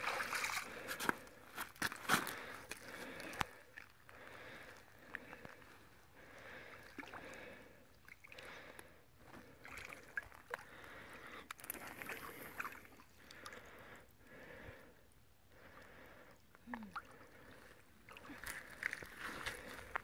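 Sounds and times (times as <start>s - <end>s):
small splashes: 0.0s - 0.9s
shallow water sloshing: 0.0s - 1.1s.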